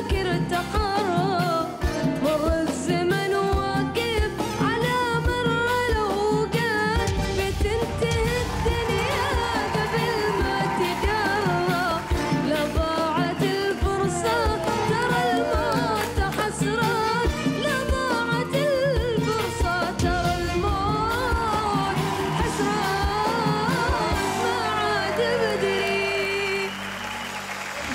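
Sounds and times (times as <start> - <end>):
band accompaniment: 0.0 - 27.9
steady drum beat: 3.6 - 25.3.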